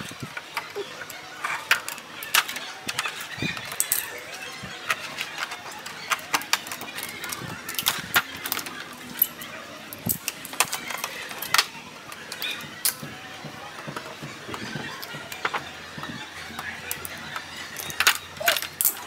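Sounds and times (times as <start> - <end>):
metallic clicks and clatter: 16.6 - 19.0.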